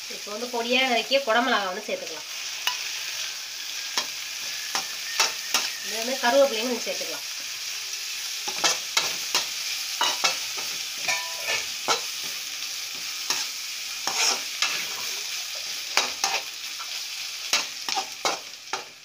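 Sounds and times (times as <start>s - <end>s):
vegetables sizzling in hot oil: 0.0s - 19.0s
metal skimmer scraping a pan: 11.0s - 11.7s.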